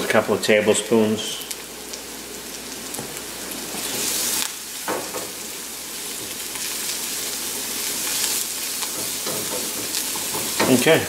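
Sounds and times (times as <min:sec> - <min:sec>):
vegetables sizzling in a skillet: 0:00.0 - 0:11.0
spatula stirring and scraping: 0:06.2 - 0:10.8
spatula knocking against pan: 0:08.9 - 0:10.8.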